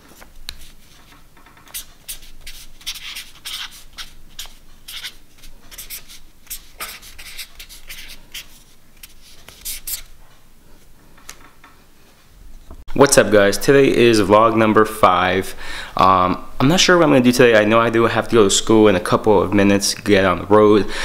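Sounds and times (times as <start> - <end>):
marker scratching on paper: 0.5 - 10.2.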